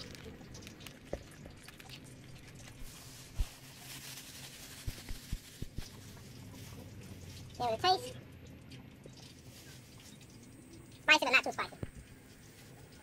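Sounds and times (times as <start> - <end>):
plastic bag rustling: 0.0 - 7.6, 9.2 - 10.3.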